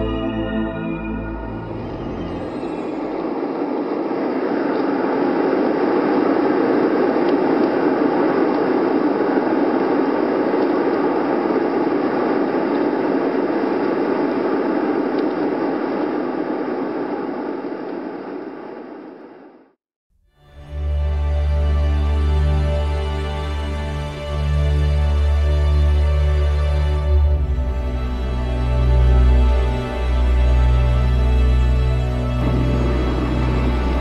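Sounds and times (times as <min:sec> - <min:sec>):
steady rushing noise: 0:02.4 - 0:19.6, 0:32.4 - 0:34.0.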